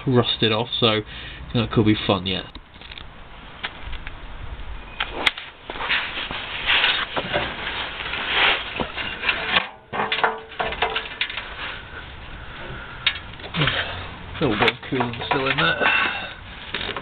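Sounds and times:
hose rubbing and scraping: 0:05.1 - 0:09.6.

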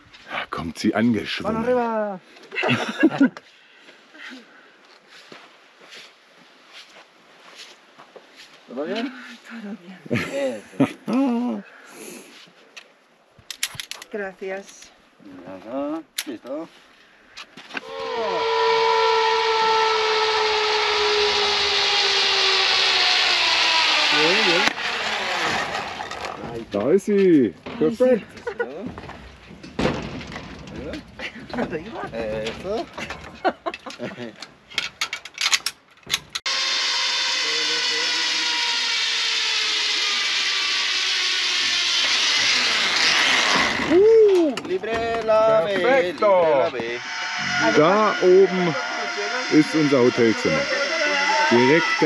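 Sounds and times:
zipline pulleys whining on cable: 0:17.8 - 0:26.6, 0:36.4 - 0:44.0, 0:45.8 - 0:52.0.

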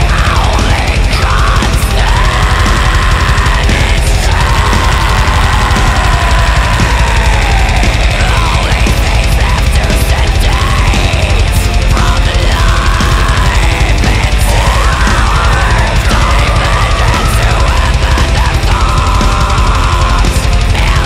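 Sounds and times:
heavy metal band playing: 0:00.0 - 0:21.0
high pitch-bending guitar line: 0:00.0 - 0:21.0.

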